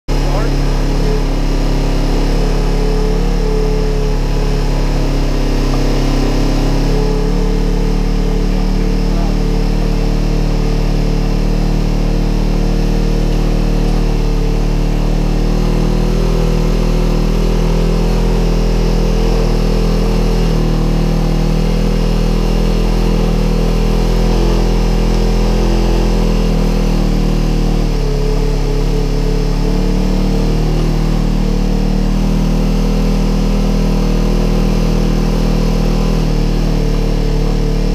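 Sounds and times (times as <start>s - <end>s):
off-road vehicle engine running: 0.0s - 37.9s.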